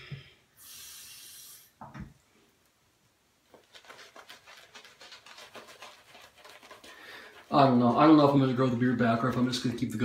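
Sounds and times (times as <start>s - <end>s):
brief hiss: 0.6s - 1.9s
shaving brush swishing strokes: 3.6s - 8.2s.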